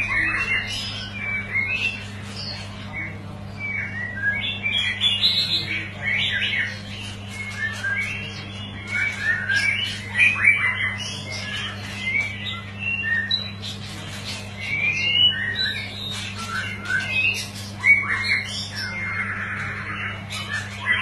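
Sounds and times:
bird singing whistled phrases: 0.0 - 13.6.

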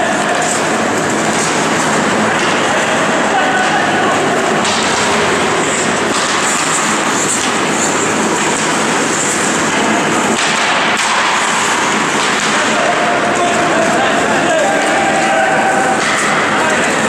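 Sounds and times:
ice hockey play: 0.0 - 17.0
skates scraping on ice: 0.0 - 17.0.

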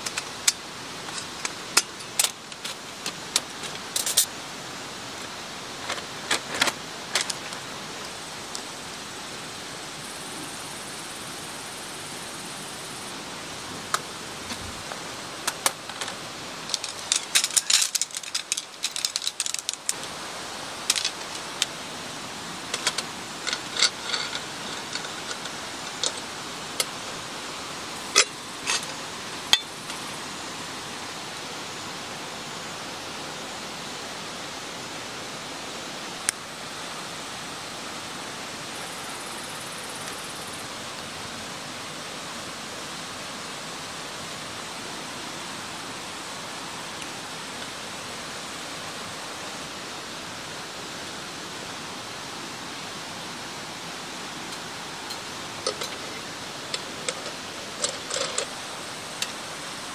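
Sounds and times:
mountain stream rushing: 0.0 - 59.9
light clicks and clinks: 15.4 - 20.1.

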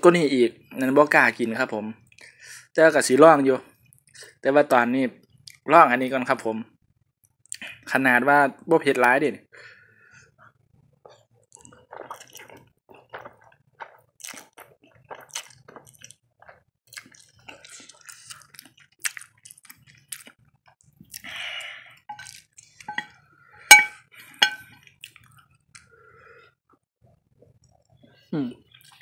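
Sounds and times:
person slurping and chewing noodles: 10.2 - 22.8
metal spoon clinking on plate: 22.1 - 22.3, 22.9 - 23.1, 23.7 - 24.6.

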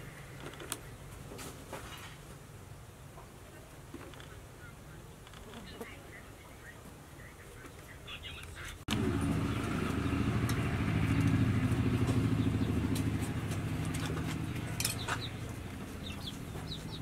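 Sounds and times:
small engine running: 8.9 - 17.0.

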